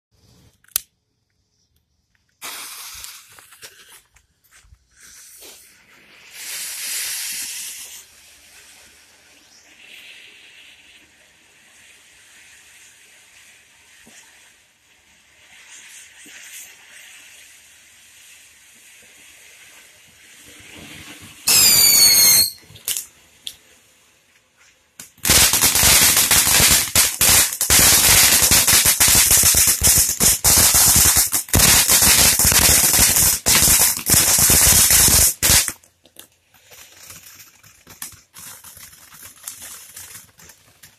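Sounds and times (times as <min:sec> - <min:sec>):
hiss of spraying sparks: 0:02.3 - 0:04.1, 0:04.9 - 0:23.1, 0:24.6 - 0:35.8
firework crackling: 0:02.3 - 0:40.9
firework whistle: 0:02.4 - 0:03.4, 0:04.9 - 0:14.3, 0:21.4 - 0:22.7, 0:25.2 - 0:35.7.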